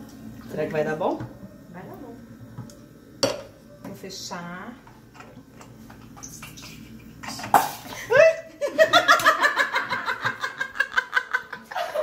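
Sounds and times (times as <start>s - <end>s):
hearty laughter: 8.6s - 12.0s.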